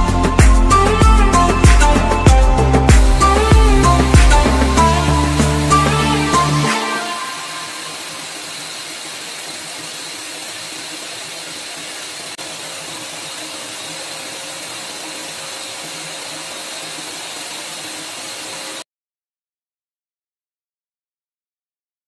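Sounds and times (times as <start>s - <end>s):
paint sprayer motor whining: 0.0s - 18.8s
air rushing through hose: 2.6s - 18.8s.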